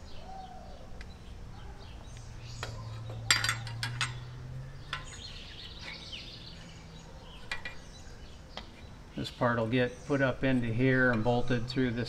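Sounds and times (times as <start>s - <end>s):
faint low hum: 0.0s - 12.0s
metallic clinks and taps: 2.6s - 6.0s, 7.4s - 7.9s.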